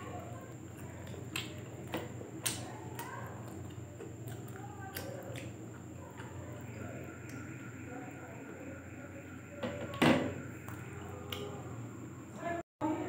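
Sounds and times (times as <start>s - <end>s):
people chewing and eating: 0.0s - 12.6s
steady low hum: 0.0s - 13.0s
faint high whine: 5.7s - 13.0s.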